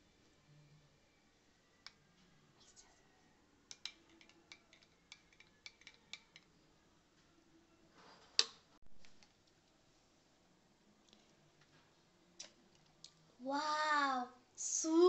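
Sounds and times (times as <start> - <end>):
spoon clinking against glass: 3.7 - 6.5.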